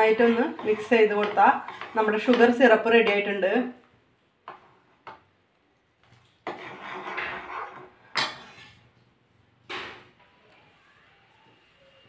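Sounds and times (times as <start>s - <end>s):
ladle scraping pan: 0.0s - 3.4s, 6.4s - 8.9s.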